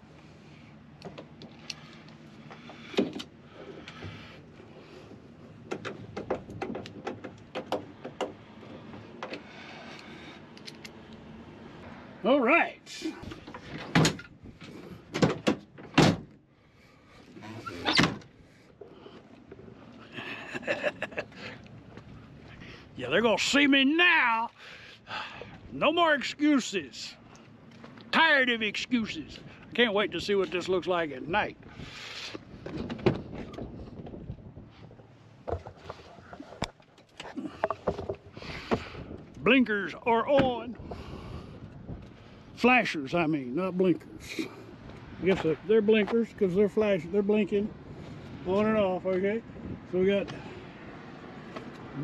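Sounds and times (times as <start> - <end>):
light wind: 0.0 - 52.0
knocks and clunks: 5.6 - 9.5, 13.2 - 16.4, 32.6 - 34.2, 35.4 - 39.0.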